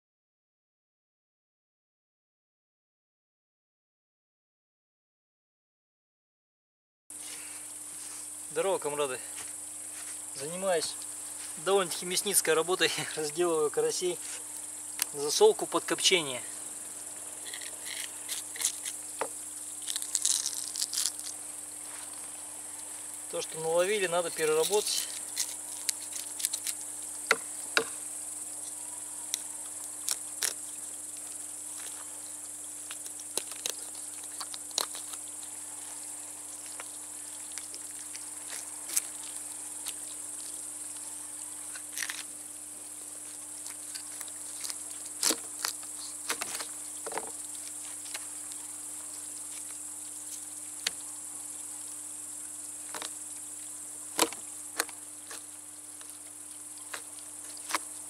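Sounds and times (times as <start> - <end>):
insects chirring: 7.1 - 58.0
knife scraping fish scales: 17.4 - 19.1.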